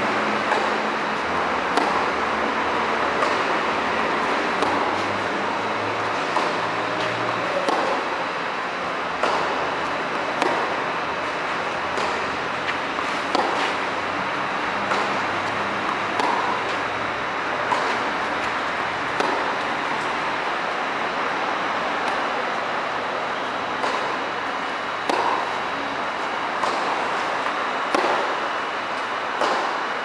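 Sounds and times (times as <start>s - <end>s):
steady background hiss: 0.0s - 30.0s
tennis rackets hitting ball: 0.4s - 29.9s.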